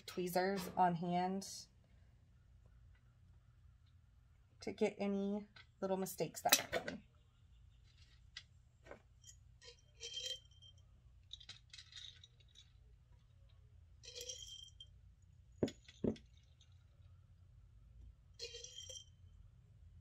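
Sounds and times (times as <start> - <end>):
plastic beads rattling and clinking: 9.2 - 17.1, 18.4 - 19.2.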